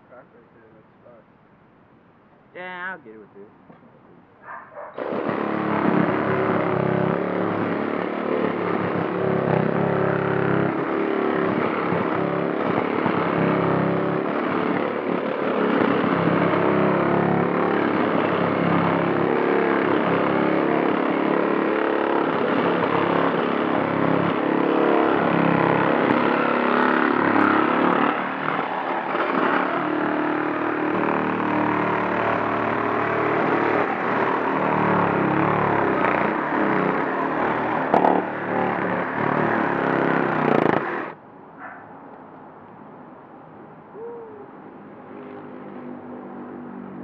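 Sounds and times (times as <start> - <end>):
power cutting tool buzzing: 5.0 - 41.2.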